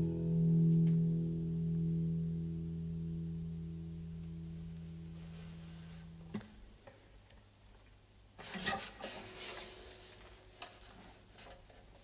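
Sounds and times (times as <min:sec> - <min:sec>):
rustling of strap and clothing: 0:08.4 - 0:12.0.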